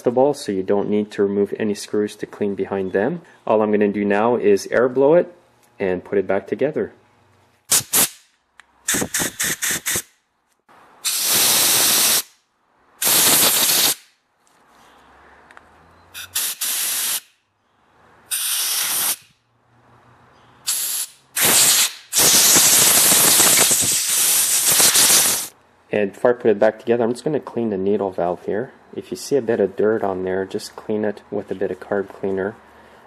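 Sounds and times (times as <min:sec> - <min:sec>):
compressed air blow gun hissing: 0:08.9 - 0:10.1, 0:11.0 - 0:12.3, 0:13.0 - 0:14.0, 0:16.2 - 0:17.3, 0:18.3 - 0:19.3, 0:20.7 - 0:25.5.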